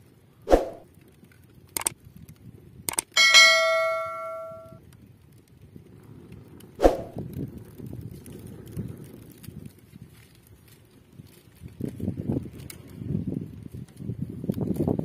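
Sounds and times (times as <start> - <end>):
sharp mouse clicks: 1.8 - 2.0, 2.9 - 3.2
bright bell ding: 3.1 - 4.8.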